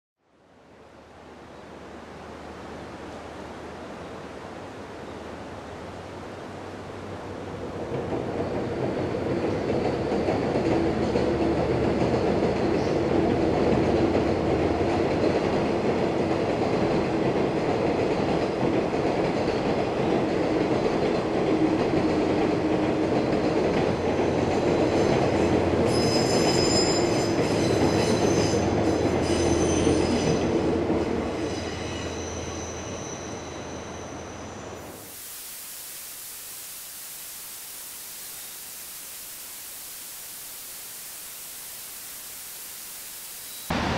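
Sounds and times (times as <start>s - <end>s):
high wheel squeal: 25.9s - 30.6s, 31.3s - 35.0s
steady hiss: 33.6s - 43.9s.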